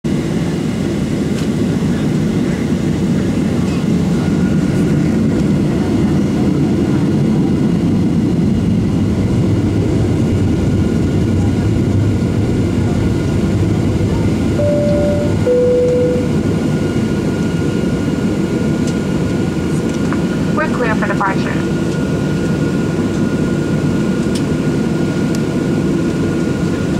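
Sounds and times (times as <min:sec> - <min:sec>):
airplane cabin engine rumble: 0:00.1 - 0:26.9
two-note chime: 0:14.6 - 0:16.4.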